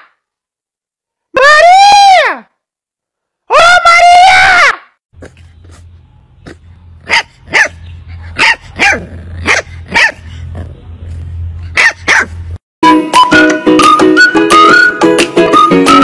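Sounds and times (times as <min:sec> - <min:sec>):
puppy yapping: 0:06.4 - 0:10.2, 0:11.8 - 0:12.4.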